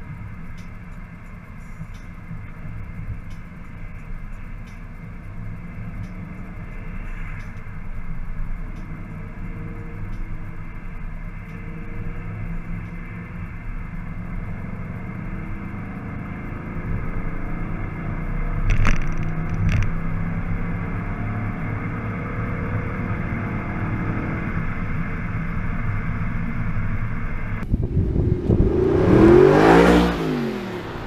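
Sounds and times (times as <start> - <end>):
car engine from inside cabin: 0.0 - 31.0
car driving past: 26.1 - 31.0.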